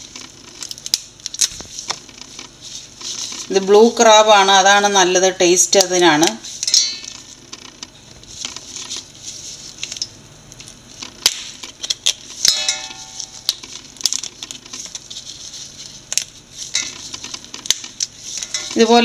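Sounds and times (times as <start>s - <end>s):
plastic gloves rustling: 0.0s - 19.0s
crab shell cracking: 0.2s - 2.5s, 9.9s - 12.4s, 13.3s - 15.0s.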